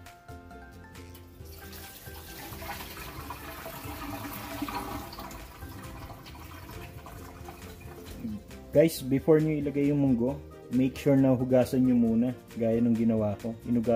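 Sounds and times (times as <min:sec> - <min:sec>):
quiet background music: 0:00.0 - 0:13.9.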